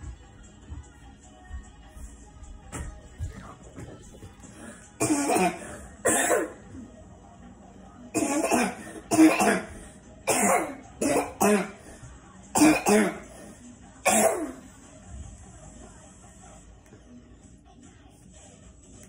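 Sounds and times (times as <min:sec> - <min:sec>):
person coughing: 0:05.0 - 0:06.6, 0:08.2 - 0:11.9, 0:12.6 - 0:13.4, 0:14.0 - 0:14.6.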